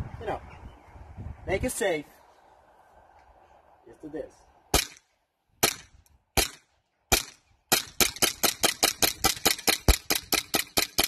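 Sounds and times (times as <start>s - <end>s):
airsoft pistol shots: 4.7s - 5.0s, 5.6s - 11.0s.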